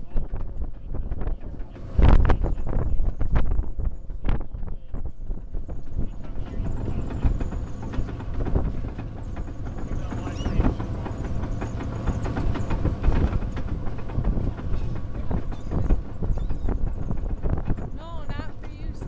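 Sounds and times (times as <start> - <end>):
boat engine running: 0.0 - 19.0
wind: 0.0 - 19.0
gulls calling: 5.5 - 19.0
wake water rushing: 5.6 - 18.5.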